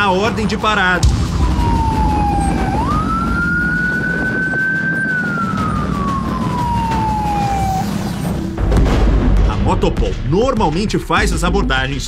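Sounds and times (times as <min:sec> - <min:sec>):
police motorcycle siren wailing: 0:00.0 - 0:08.6
engine and wind rumble: 0:00.0 - 0:09.4.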